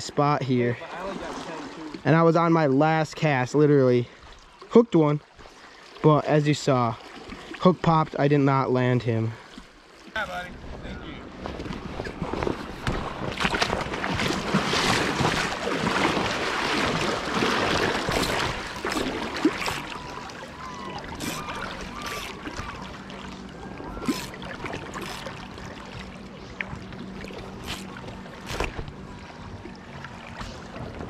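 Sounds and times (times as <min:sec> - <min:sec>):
river water rushing and splashing: 0:00.8 - 0:02.7, 0:11.6 - 0:31.0.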